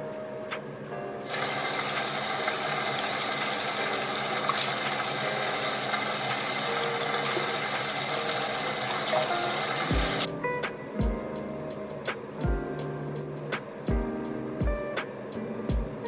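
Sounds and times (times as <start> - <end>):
water running: 1.3 - 10.3.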